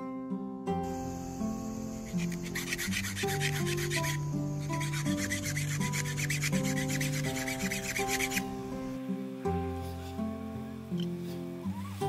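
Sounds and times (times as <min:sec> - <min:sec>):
background music: 0:00.0 - 0:12.0
hand file rasping on metal: 0:01.2 - 0:08.9.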